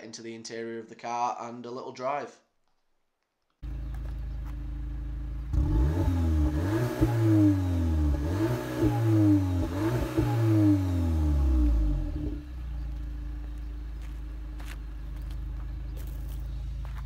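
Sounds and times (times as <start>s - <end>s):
car engine idling and revving: 3.6s - 17.0s.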